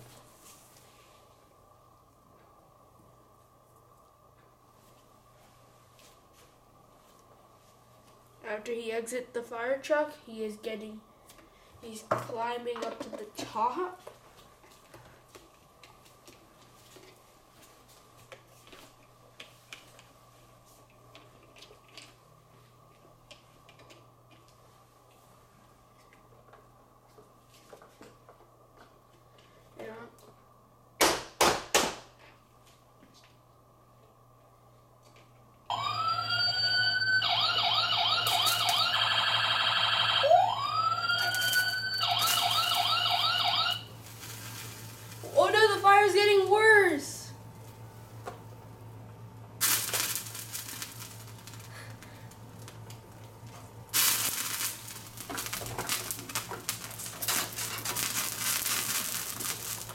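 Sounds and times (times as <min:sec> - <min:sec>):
faint steady hum: 0:00.0 - 0:31.1, 0:32.1 - 0:59.9
toy electronic siren: 0:35.7 - 0:43.9.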